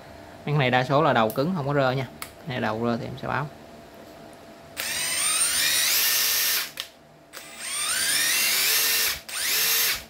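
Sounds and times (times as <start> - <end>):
cordless drill motor whining: 4.8 - 10.0.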